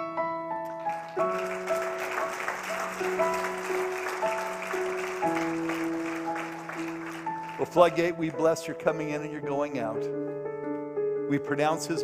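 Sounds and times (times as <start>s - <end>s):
keyboard playing sustained chords: 0.0s - 12.0s
congregation clapping and cheering: 0.7s - 8.8s.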